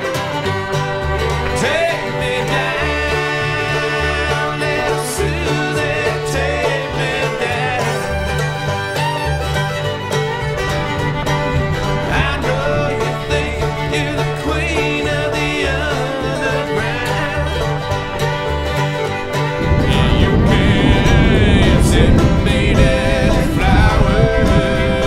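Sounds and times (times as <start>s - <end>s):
bluegrass music: 0.0s - 25.0s.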